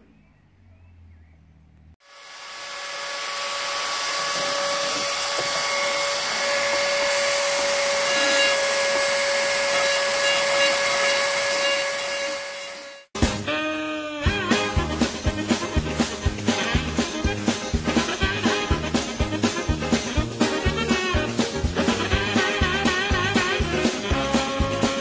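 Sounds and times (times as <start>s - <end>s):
rotary tool whining into wood: 2.0s - 13.1s
music: 13.2s - 25.0s.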